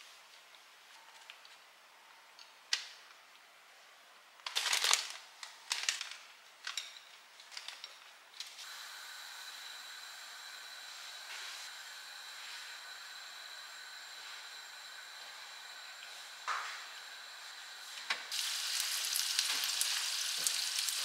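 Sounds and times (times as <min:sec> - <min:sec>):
faint high whine: 0:08.6 - 0:19.2
steady hiss: 0:08.6 - 0:21.0.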